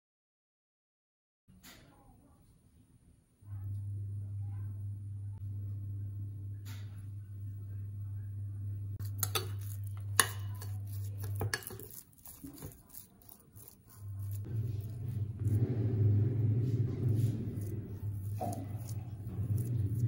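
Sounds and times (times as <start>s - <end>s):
steady low hum: 3.4s - 20.0s
loud low rumble: 3.5s - 9.0s, 14.4s - 20.0s
metal spoon scraping glass bowl: 9.0s - 15.6s, 16.6s - 20.0s.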